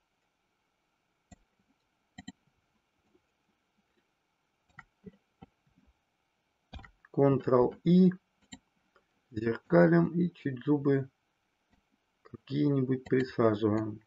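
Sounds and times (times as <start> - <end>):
mouse and keyboard clicks: 2.2 - 2.4, 6.8 - 7.0.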